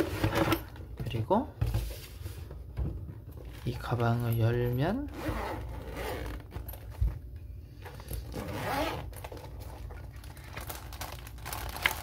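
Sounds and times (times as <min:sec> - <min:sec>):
zipper rasping open: 0:05.1 - 0:06.7, 0:08.2 - 0:09.2.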